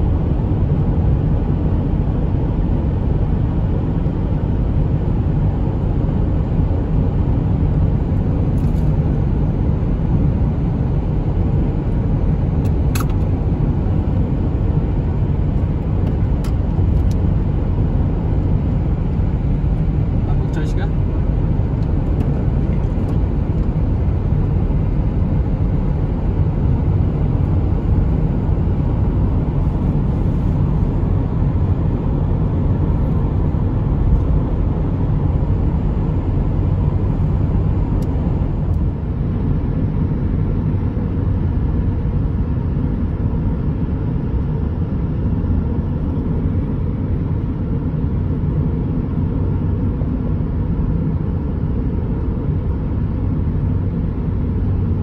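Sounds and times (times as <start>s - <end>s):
car driving at speed: 0.0s - 55.0s.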